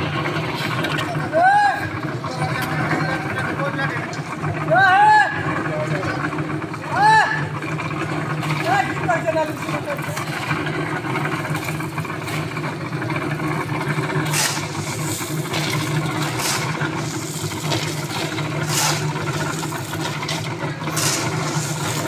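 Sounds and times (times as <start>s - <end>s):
concrete mixer running: 0.0s - 22.0s
shovel scraping sand and gravel: 14.2s - 15.4s, 16.2s - 19.2s, 20.9s - 22.0s.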